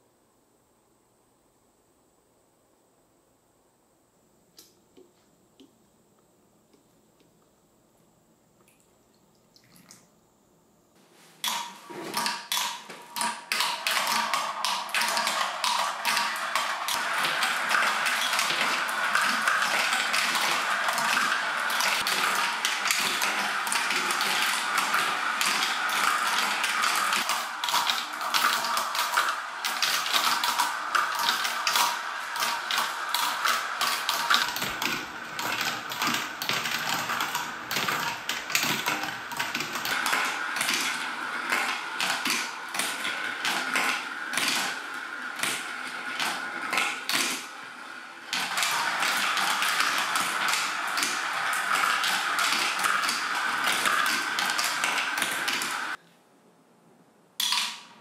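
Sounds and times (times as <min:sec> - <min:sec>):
marbles rolling on plastic track: 0:11.5 - 0:56.0.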